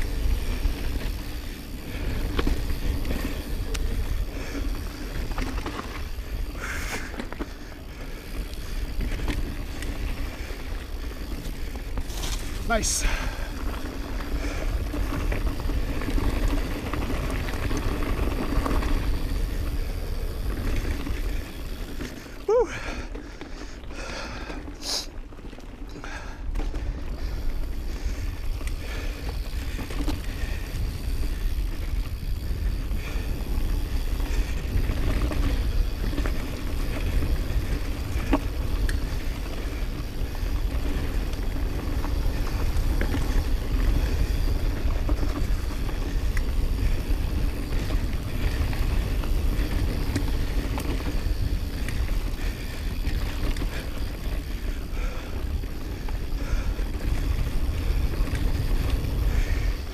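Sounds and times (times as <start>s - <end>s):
bike tyres rolling on dirt: 0.0s - 59.9s
wind buffeting microphone: 26.6s - 59.9s.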